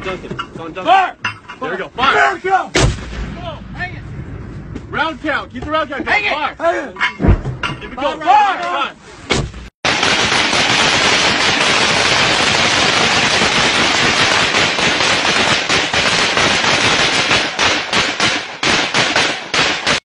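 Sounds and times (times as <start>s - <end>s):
assault rifle automatic fire: 9.9s - 20.0s.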